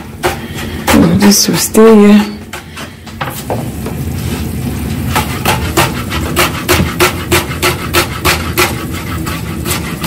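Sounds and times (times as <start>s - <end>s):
knife chopping on cutting board: 5.1s - 10.0s.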